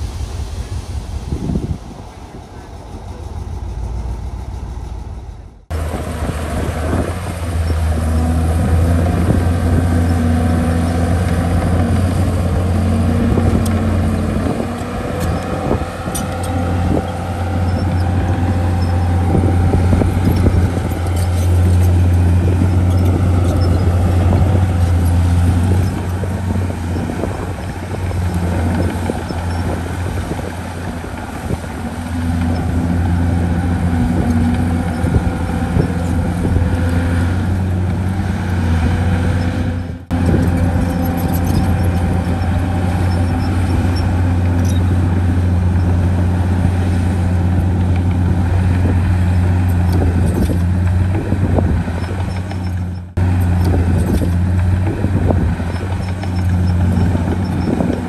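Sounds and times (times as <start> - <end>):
heavy diesel engine running: 0.0 - 58.0.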